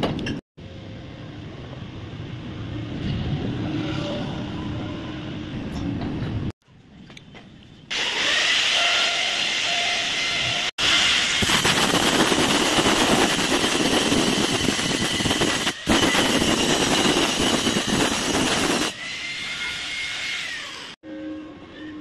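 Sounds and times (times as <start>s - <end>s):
angle grinder grinding steel: 7.9s - 22.0s.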